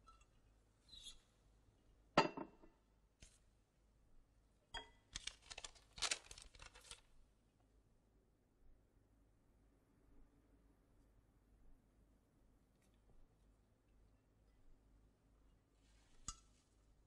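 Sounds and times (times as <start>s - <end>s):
paper crackling rustle: 5.1s - 7.1s.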